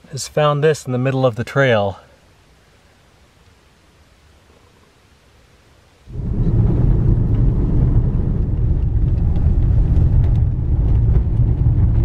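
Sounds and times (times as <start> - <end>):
tyre and road rumble: 6.1 - 12.0.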